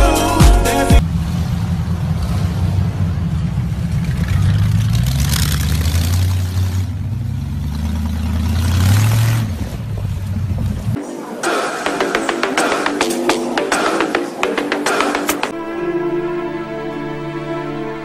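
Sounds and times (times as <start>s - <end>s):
music with drum beat: 0.0s - 1.0s, 11.0s - 15.5s
car engine accelerating: 1.0s - 11.0s.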